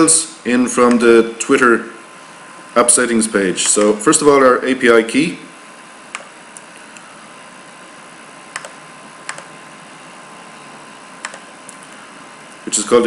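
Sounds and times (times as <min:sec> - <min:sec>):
steady background hiss: 0:00.0 - 0:13.0
mouse and keyboard clicks: 0:08.6 - 0:09.5, 0:11.2 - 0:11.4.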